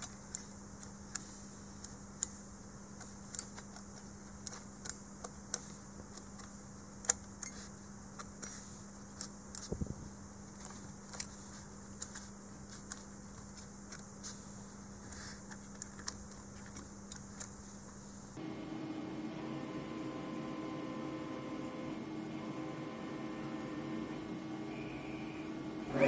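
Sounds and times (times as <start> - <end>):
cnc router humming: 18.4 - 26.0.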